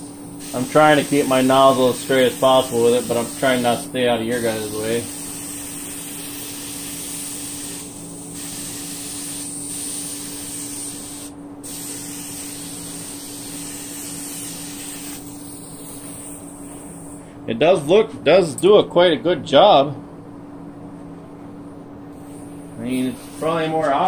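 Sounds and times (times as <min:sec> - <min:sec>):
spray gun air hiss: 0:00.0 - 0:17.4, 0:22.1 - 0:24.0.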